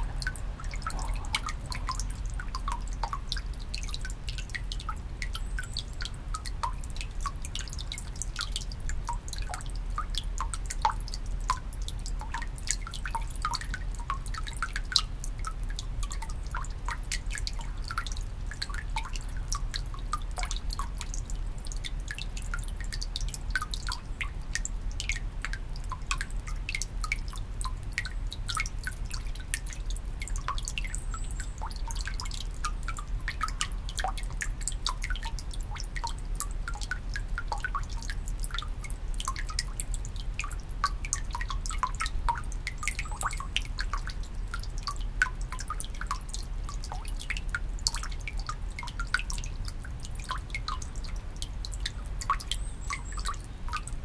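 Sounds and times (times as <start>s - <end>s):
water dripping into basin: 0.0s - 54.0s.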